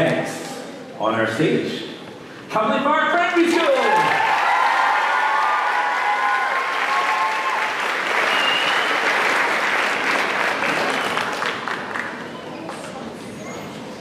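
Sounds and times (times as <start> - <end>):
high cheers: 3.5 - 9.9
audience applauding: 3.6 - 12.5.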